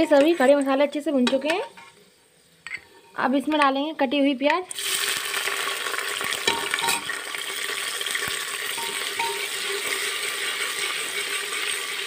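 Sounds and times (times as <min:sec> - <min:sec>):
steel spoon stirring: 0:00.0 - 0:02.0, 0:08.8 - 0:10.1
onions sizzling in oil: 0:00.0 - 0:12.0.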